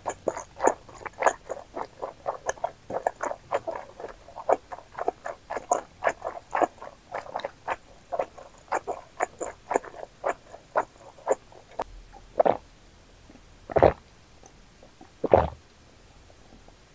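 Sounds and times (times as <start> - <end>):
swallowing gulps: 0.0 - 12.6, 13.7 - 14.0, 14.8 - 15.6
wet chewing of noodles: 0.0 - 12.6.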